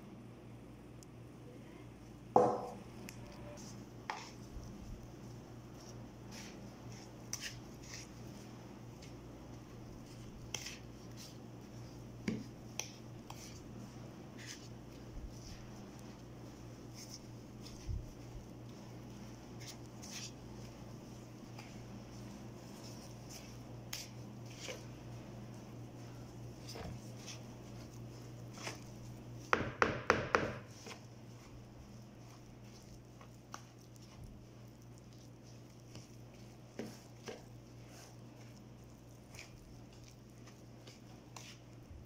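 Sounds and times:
steady low hum: 0.0 - 42.0
soft stirring of dough: 0.5 - 42.0
spoon knocking plastic bowl: 2.4 - 2.8.

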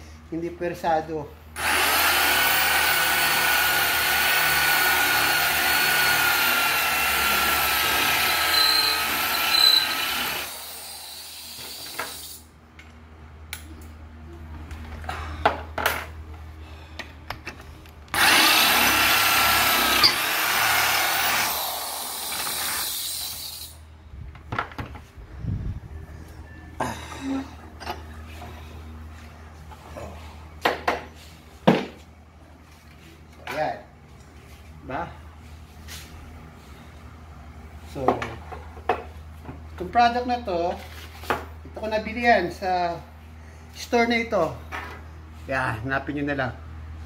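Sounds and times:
electric drill boring through steel: 1.6 - 12.3, 18.2 - 23.8.

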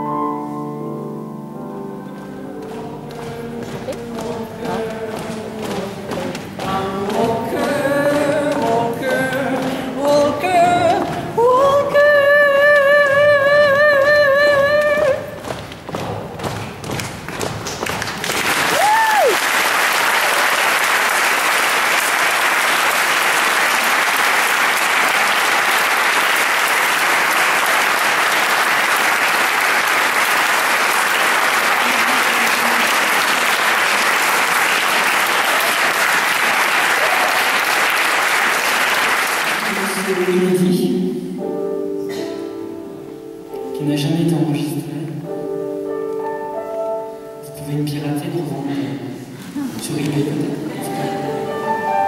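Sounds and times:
audience applauding: 16.6 - 40.5.

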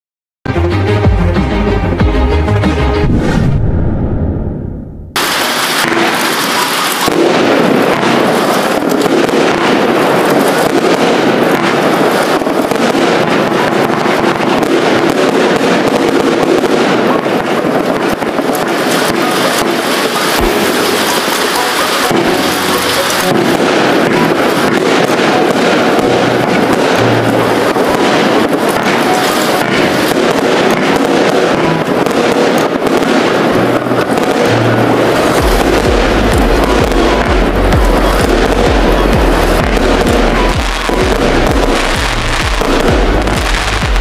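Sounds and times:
fireworks launching and bursting: 2.3 - 44.0.

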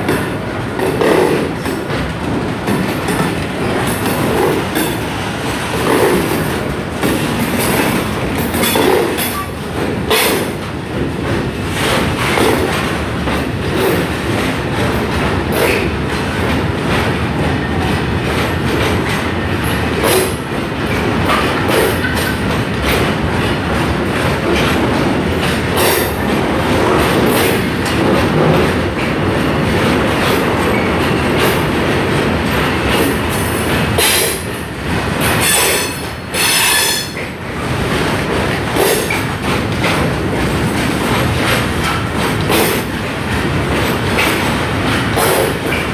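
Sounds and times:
train wheels rumbling and clattering: 0.0 - 45.9.

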